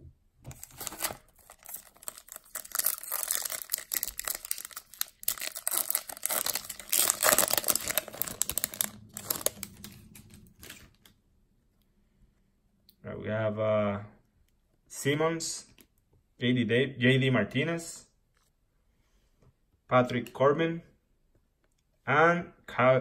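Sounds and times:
foil wrapper tearing and crackling: 0:00.5 - 0:10.8.

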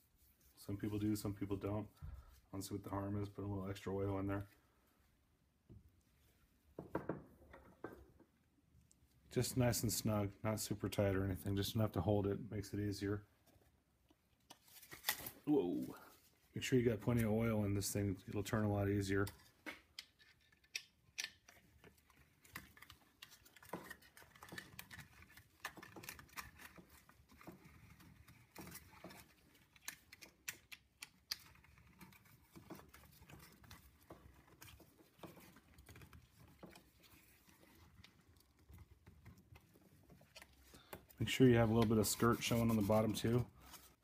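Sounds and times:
rubber gloves rubbing: 0:00.0 - 0:02.5, 0:13.2 - 0:44.0.

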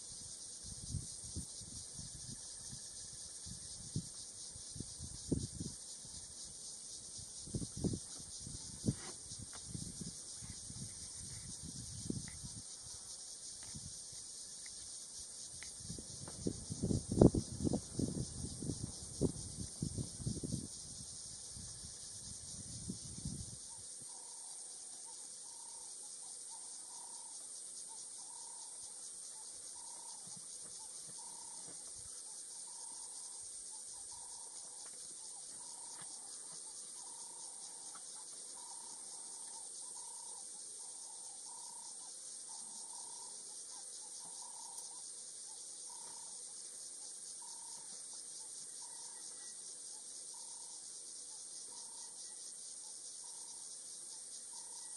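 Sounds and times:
insect chorus drone: 0:00.0 - 0:54.9.

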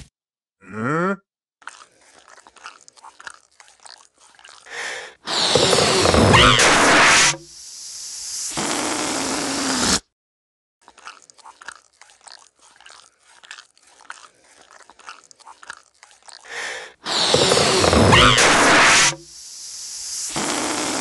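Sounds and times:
loud hissing rush: 0:17.1 - 0:21.0.

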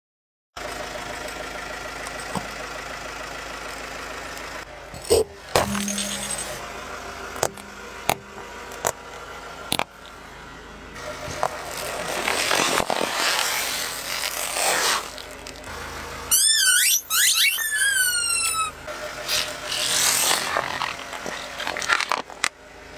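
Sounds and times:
glass bottle cracking: 0:05.0 - 0:06.6
squeaky toy squealing: 0:16.3 - 0:20.5.

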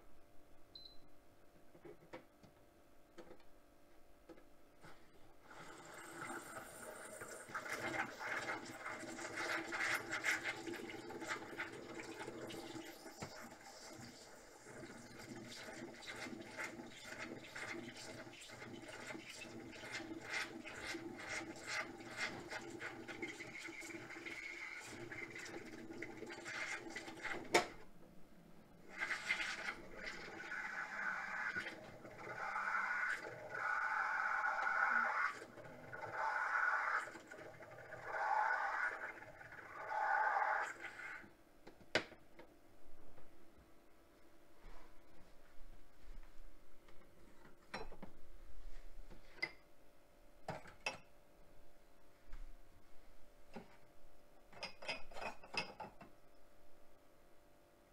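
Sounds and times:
steam wand frothing milk: 0:05.4 - 0:27.8, 0:28.8 - 0:41.3
steam wand hissing into milk: 0:28.9 - 0:41.3.

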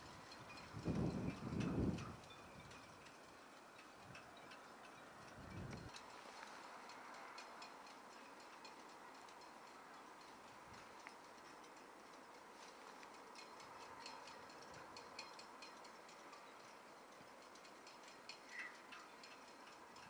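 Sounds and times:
faint ticks: 0:00.0 - 0:20.0.

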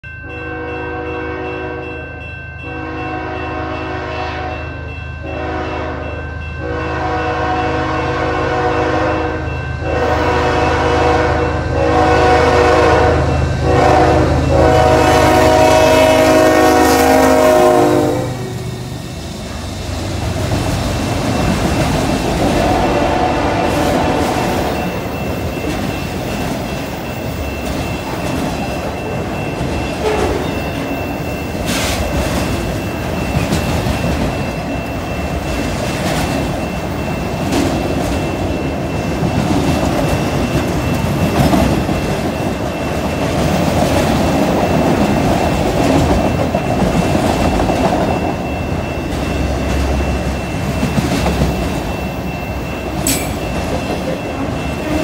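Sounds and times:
train wheels rumbling on rail: 0:00.3 - 0:55.0
clickety-clack over rail joints: 0:20.2 - 0:55.0
sharp metal clanks: 0:53.0 - 0:54.2.

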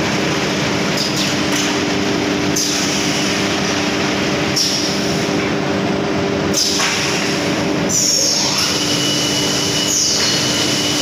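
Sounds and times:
saw and conveyor machine din: 0:06.4 - 0:11.0.

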